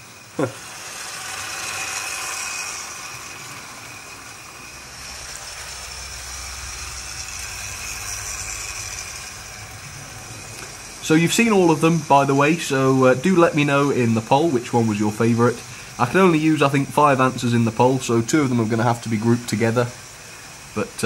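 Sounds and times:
model trains whirring on track: 0.0 - 21.0.

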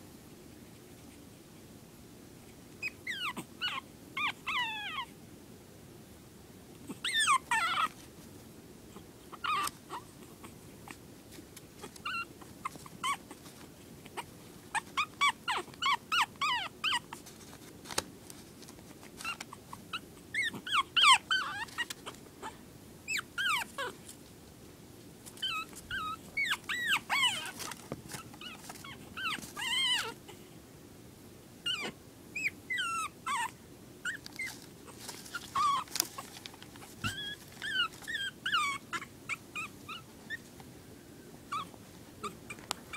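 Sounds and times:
puppy whimpering and whining: 2.8 - 5.2, 6.9 - 8.0, 9.0 - 11.0, 11.8 - 13.4, 14.0 - 17.2, 19.2 - 24.1, 25.4 - 30.5, 31.6 - 40.5, 41.5 - 42.9.

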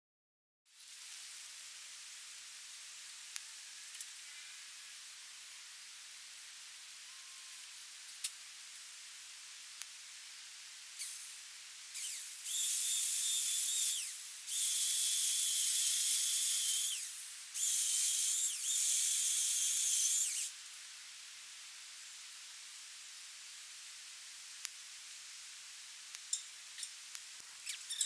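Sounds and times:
chainsaw cutting wood: 12.0 - 20.5.

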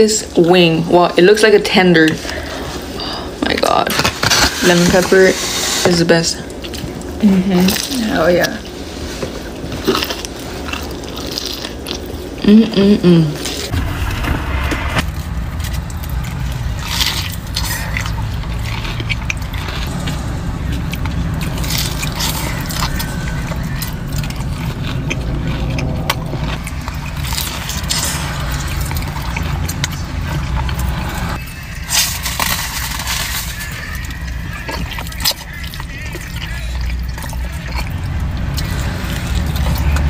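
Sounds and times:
wrapper paper crinkling: 31.4 - 36.7.

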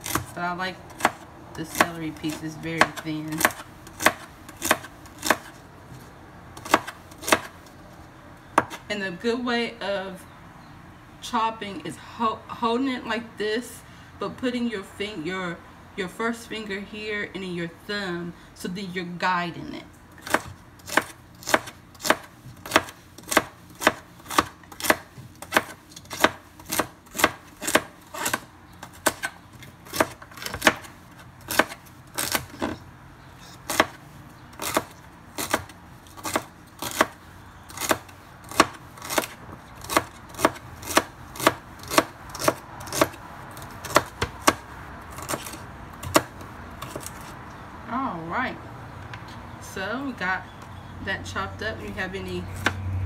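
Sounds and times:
knife chopping on wooden board: 1.0 - 5.5, 6.6 - 7.5, 8.6 - 8.8, 20.2 - 29.3, 29.9 - 30.9, 31.5 - 32.8, 33.6 - 34.0, 34.6 - 43.2, 43.8 - 47.3.

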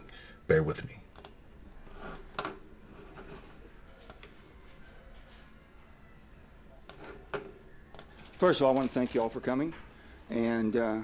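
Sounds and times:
computer mouse clicks: 1.2 - 1.4, 7.9 - 8.1.

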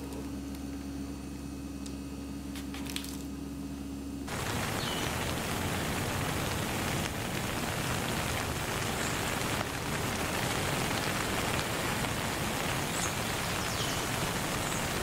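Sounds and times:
steady hiss: 4.3 - 15.0.

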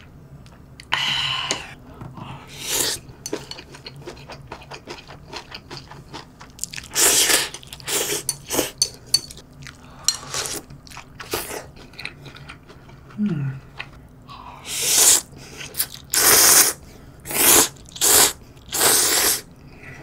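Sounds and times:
person slurping noodles: 2.5 - 3.0, 14.6 - 19.5.

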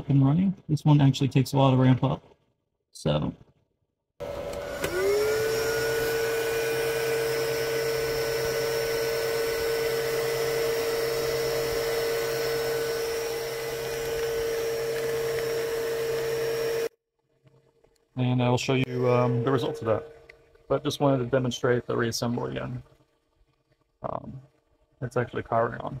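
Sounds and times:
cooling fans whirring: 4.2 - 16.9, 18.8 - 21.4
low hum: 4.5 - 16.9, 18.2 - 22.9.

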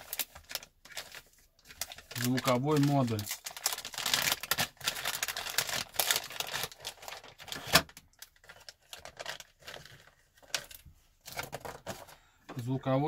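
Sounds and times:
plastic bag crinkling: 0.0 - 12.1.

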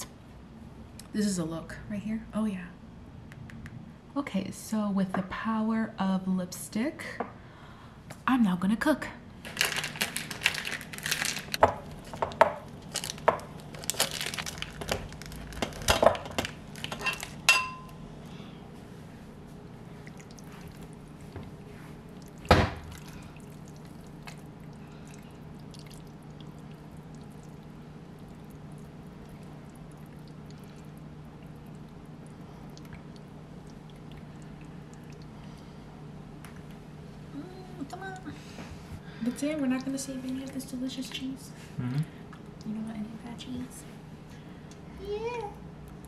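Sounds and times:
steady low hum: 0.0 - 46.0
cookware and glassware clinking: 16.9 - 18.0.

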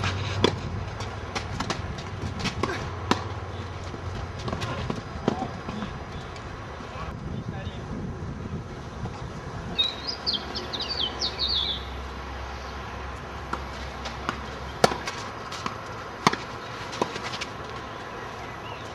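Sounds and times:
songbird chirping: 9.8 - 12.9, 17.8 - 18.9.

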